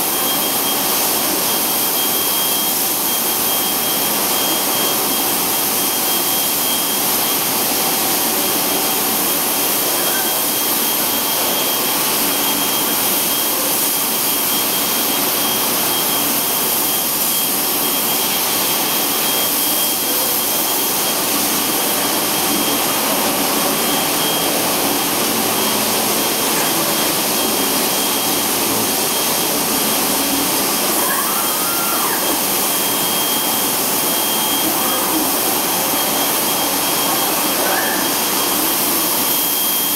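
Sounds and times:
thin steady whistle: 30.9 - 39.9.

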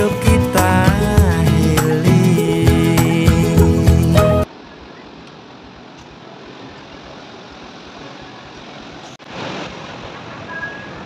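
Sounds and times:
background music: 0.0 - 4.5.

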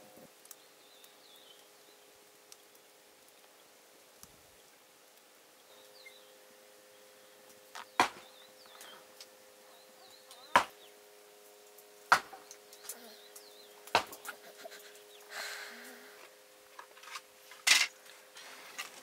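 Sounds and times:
sharp chopping blows: 8.0 - 8.3, 10.6 - 10.8, 12.1 - 12.4, 13.9 - 14.3
faint bird chirps: 12.3 - 16.0.

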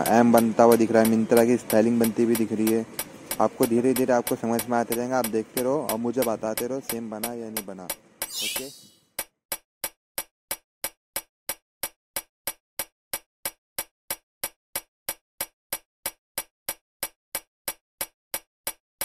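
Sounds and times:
sharp evenly spaced ticks: 0.0 - 8.7.

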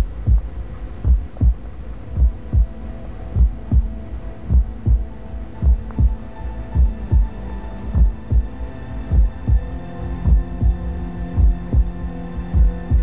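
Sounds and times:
heartbeat thumps: 0.0 - 13.0
low droning hum: 0.0 - 13.0.

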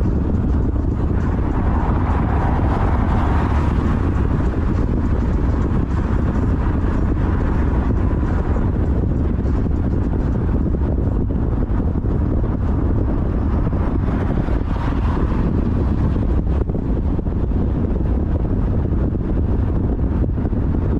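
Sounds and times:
car passing alongside: 0.0 - 8.4, 13.4 - 16.6
car road and wind noise: 0.0 - 20.9.

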